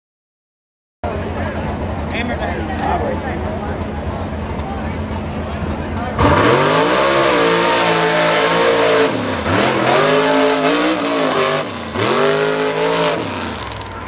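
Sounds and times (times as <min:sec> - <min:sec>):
truck engine revving hard: 0:05.6 - 0:14.0.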